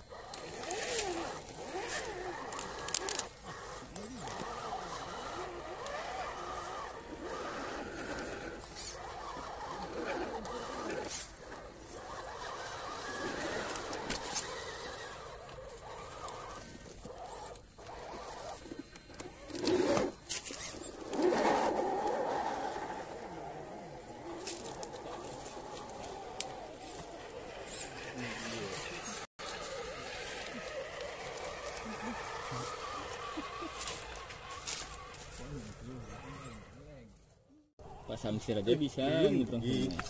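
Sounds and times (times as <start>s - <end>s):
electric motors whining: 0.0s - 40.0s.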